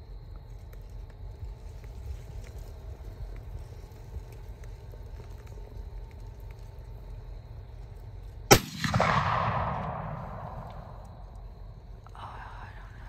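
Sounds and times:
gunshot echoing: 8.5s - 11.3s.

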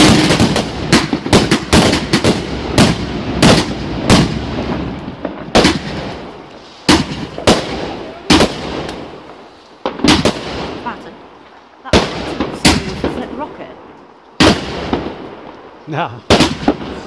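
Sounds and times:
fireworks banging: 0.0s - 17.0s.

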